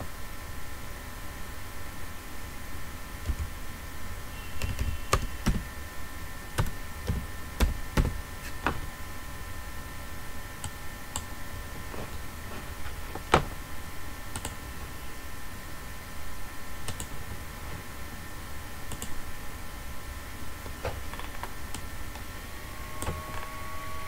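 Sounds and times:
faint steady hum: 0.0 - 24.0
computer keyboard typing: 4.5 - 5.8, 6.6 - 8.3, 14.3 - 14.6, 16.8 - 17.1, 18.9 - 19.2
mouse clicks: 18.9 - 19.2.

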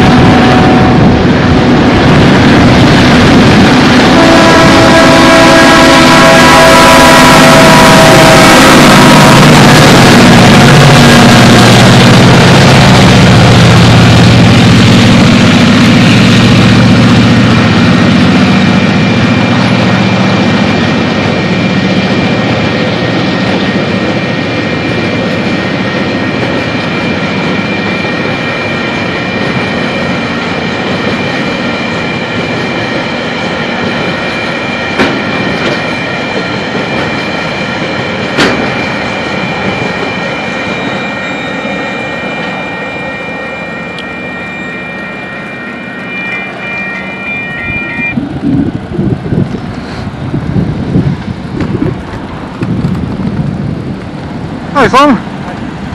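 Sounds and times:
diesel locomotive engines: 0.0 - 55.9
train wagons rolling rumble: 9.3 - 42.6, 48.1 - 55.9
high steady tone: 38.7 - 48.8.

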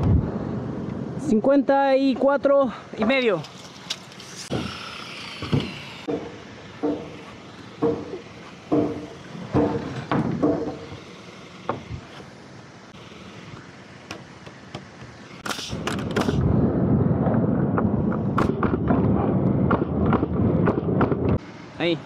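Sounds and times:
board scraping across framing: 3.4 - 12.4
wood knocking on wood: 5.4 - 12.1.

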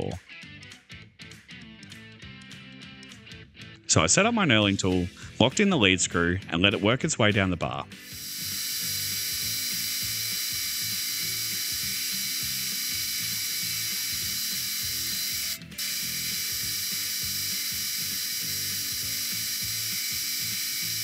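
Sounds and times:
metal lathe gear whine: 8.0 - 21.0.

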